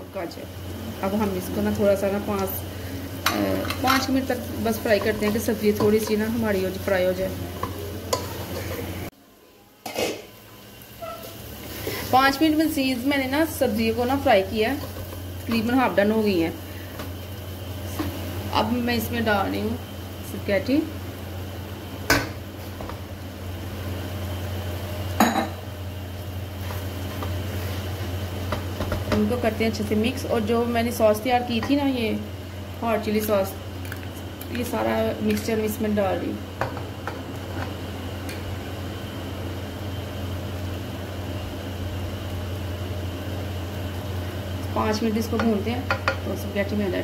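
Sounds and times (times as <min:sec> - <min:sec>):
low mechanical hum: 0:00.0 - 0:47.0.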